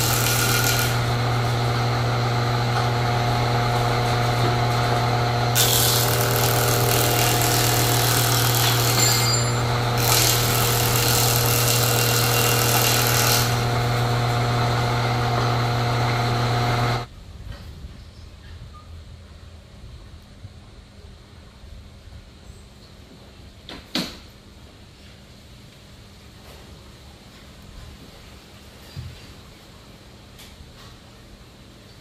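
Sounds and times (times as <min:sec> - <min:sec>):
planer blades cutting wood: 0:00.0 - 0:17.1
wood planer motor hum: 0:00.0 - 0:17.1.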